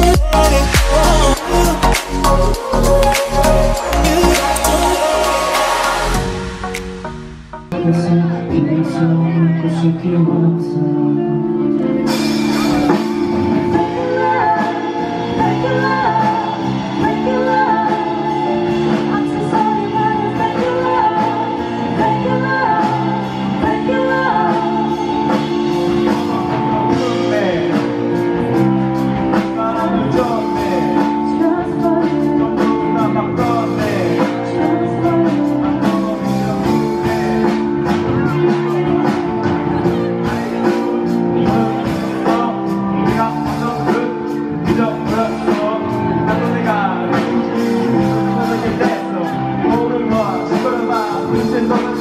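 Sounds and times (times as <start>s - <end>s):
amplified instrumental accompaniment: 0.0s - 52.0s
person singing live: 0.0s - 52.0s.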